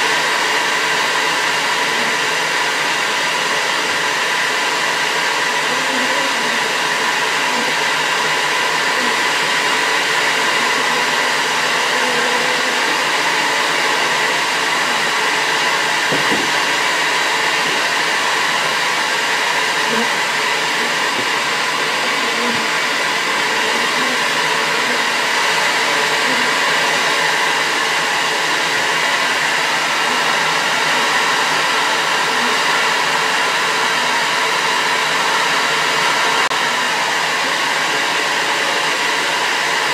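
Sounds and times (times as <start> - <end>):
vacuum motor whine: 0.0 - 39.9.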